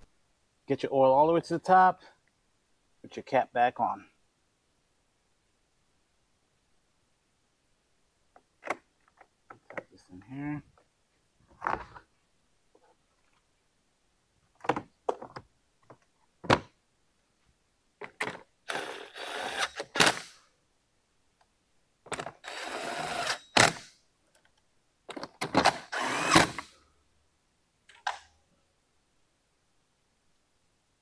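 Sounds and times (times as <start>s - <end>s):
cordless drill driving screws: 18.7s - 20.3s, 22.4s - 23.9s, 25.6s - 26.7s.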